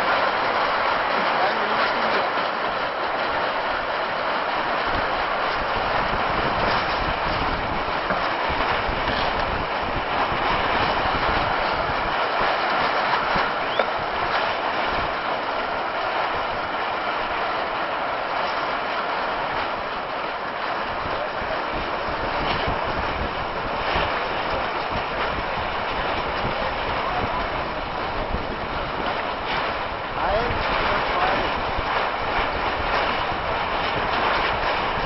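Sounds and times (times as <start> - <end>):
choppy water around boat: 0.0 - 35.0.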